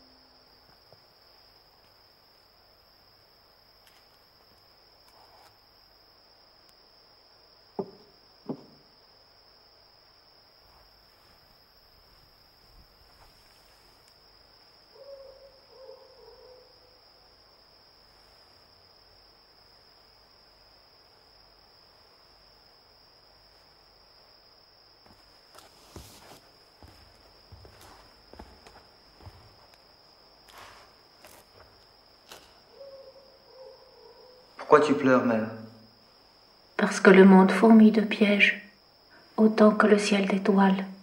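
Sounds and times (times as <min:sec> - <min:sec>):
crickets chirping: 0:00.0 - 0:41.0
owl hooting: 0:14.9 - 0:16.9, 0:32.6 - 0:34.5
footsteps: 0:25.0 - 0:32.7.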